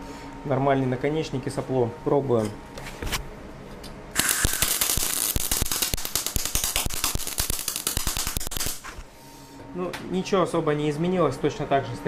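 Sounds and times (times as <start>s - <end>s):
welding arc popping and crackling: 4.1s - 9.0s.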